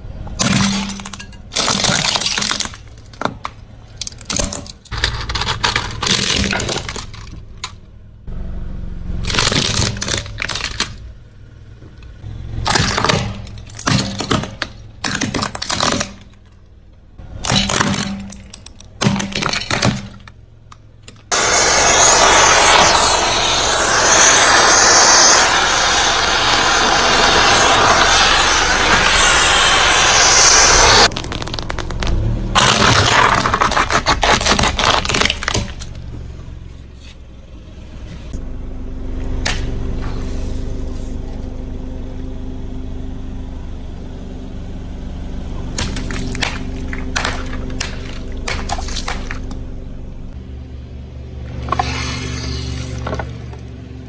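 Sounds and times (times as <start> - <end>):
loud steady noise: 21.3 - 35.8
tyre crushing crunchy objects: 31.0 - 36.0.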